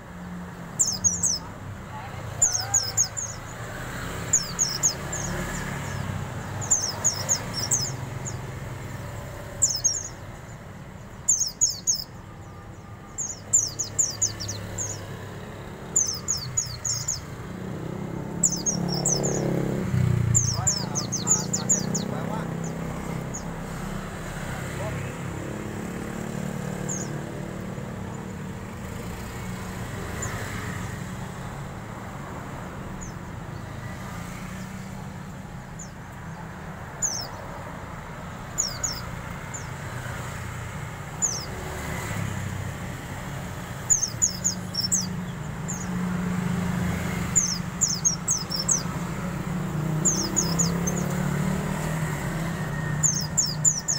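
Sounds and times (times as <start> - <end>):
bird high chirps: 0.6 - 15.2, 15.9 - 24.0, 26.4 - 28.4, 32.9 - 40.4, 41.0 - 41.6, 43.7 - 46.0, 46.9 - 49.2, 49.8 - 53.9.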